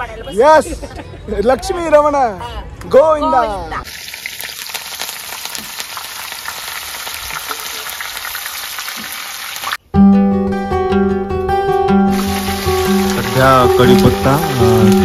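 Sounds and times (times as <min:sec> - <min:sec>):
leaves sizzling in hot oil: 0:03.9 - 0:09.8, 0:12.1 - 0:15.0
background music with bass: 0:10.0 - 0:15.0.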